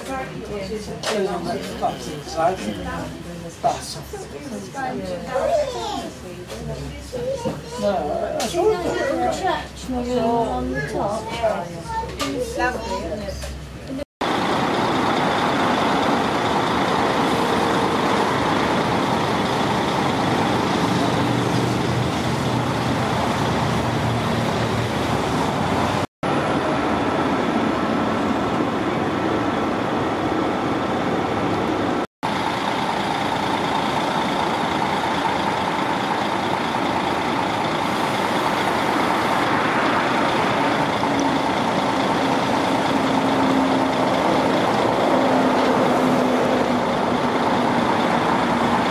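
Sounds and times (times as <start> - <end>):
vehicle running noise: 12.9 - 48.9.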